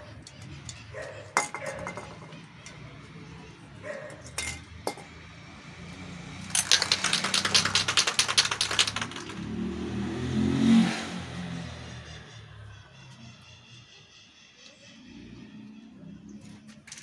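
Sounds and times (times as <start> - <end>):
spray can ball rattling: 6.4 - 9.6.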